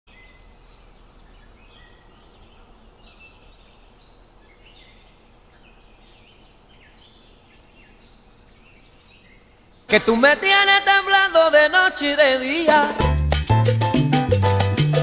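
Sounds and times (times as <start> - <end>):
bird chirps and calls: 0.1 - 9.9
low outdoor background noise: 0.1 - 13.0.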